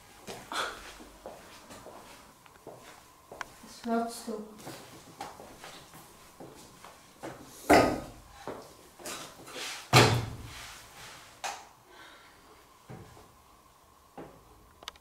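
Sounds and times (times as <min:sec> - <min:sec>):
furniture thumping: 0:09.9 - 0:10.5.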